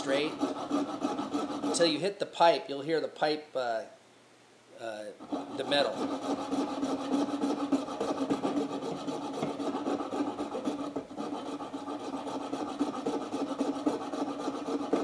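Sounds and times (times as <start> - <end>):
hand saw cutting antler: 0.0 - 2.0, 5.2 - 15.0.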